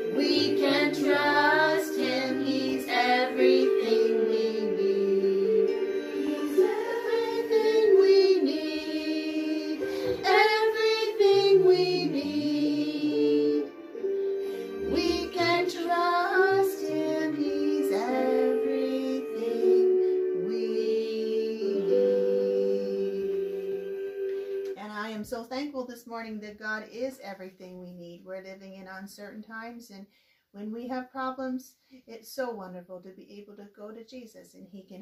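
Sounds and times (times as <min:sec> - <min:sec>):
children singing worship song: 0:00.0 - 0:13.8, 0:14.5 - 0:23.8
sustained keyboard chords: 0:00.0 - 0:24.7.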